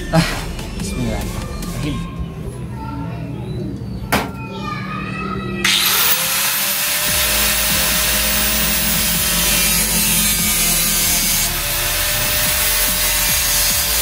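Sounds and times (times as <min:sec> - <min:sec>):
angle grinder cutting sheet steel: 0:05.6 - 0:14.0.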